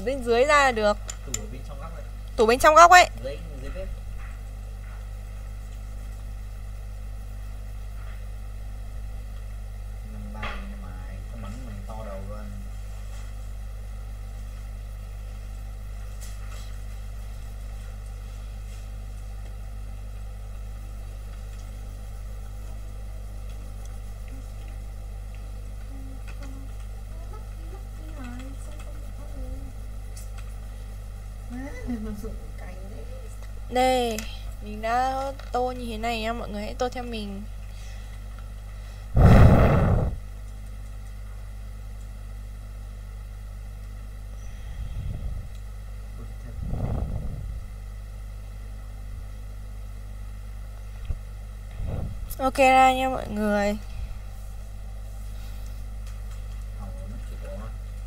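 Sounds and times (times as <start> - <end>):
low electrical mains hum: 0.0 - 58.0
air rushing on microphone: 39.2 - 40.2, 46.6 - 47.6.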